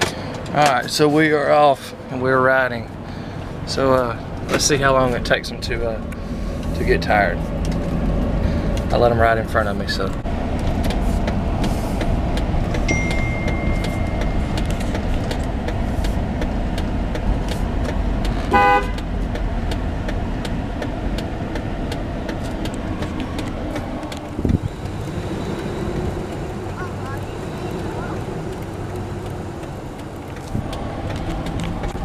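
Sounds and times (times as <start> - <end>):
car engine and tyre rumble: 0.0 - 32.0
car horn toot: 18.5 - 19.0.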